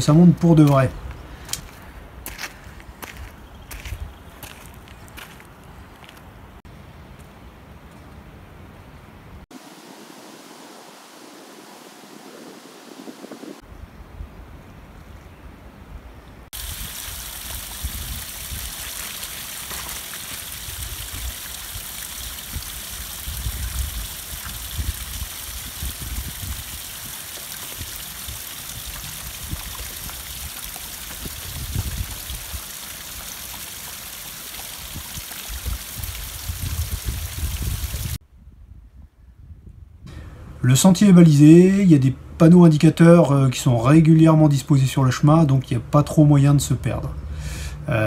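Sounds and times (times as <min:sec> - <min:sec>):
wind rumble on microphone: 0:11.6 - 0:16.9, 0:17.5 - 0:18.8, 0:22.4 - 0:32.7, 0:34.8 - 0:40.3
stream trickling over rock: 0:16.5 - 0:38.2.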